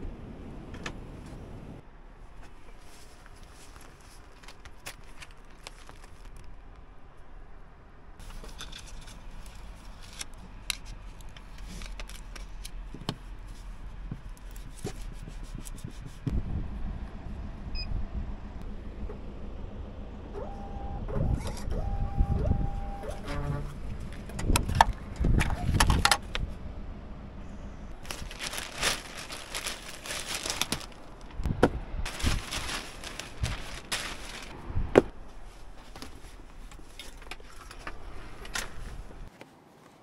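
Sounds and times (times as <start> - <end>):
objects handled clicking and rustling: 2.4 - 6.6, 8.2 - 15.2, 28.0 - 31.4, 32.1 - 39.5
low rumble: 16.2 - 20.4, 21.1 - 35.8.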